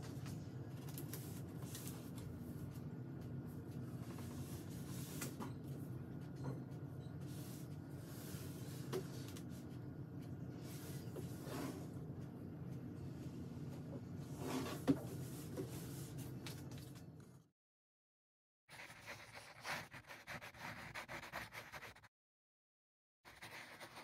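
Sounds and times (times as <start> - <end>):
low room hum: 0.0 - 17.5.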